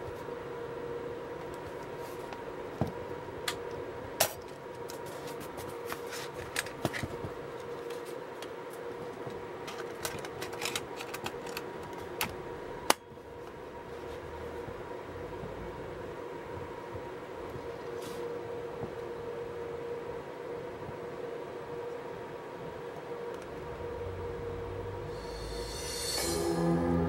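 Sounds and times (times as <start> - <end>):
steady hum: 0.0 - 27.0.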